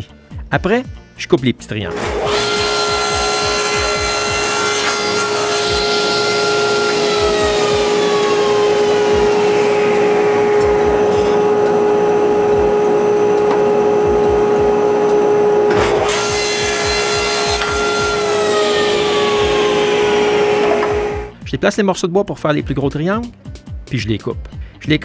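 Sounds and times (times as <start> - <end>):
table saw cutting wood: 1.8 - 21.4.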